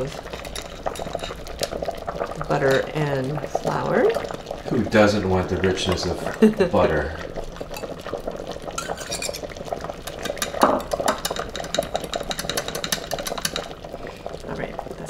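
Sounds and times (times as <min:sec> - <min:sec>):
whisk clicking against metal pot: 0:00.3 - 0:01.8, 0:08.8 - 0:13.8
knock on pot: 0:10.1 - 0:13.7.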